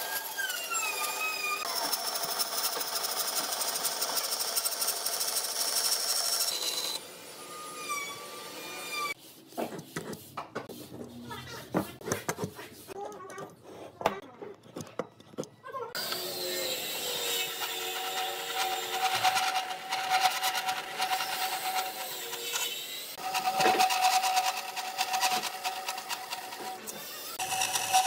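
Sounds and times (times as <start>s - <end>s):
band saw cutting wood: 0.0s - 9.2s, 16.0s - 28.0s.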